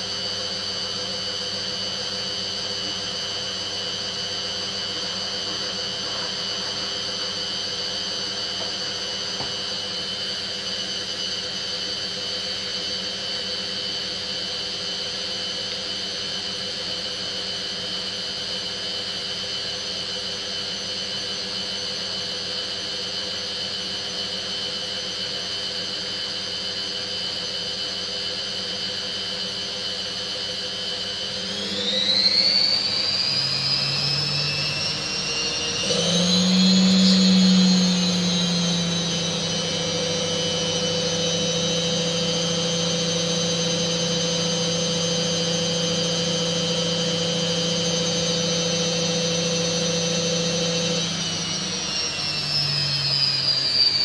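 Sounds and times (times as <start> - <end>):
washing machine drum whining: 0.1 - 11.4, 29.9 - 54.0.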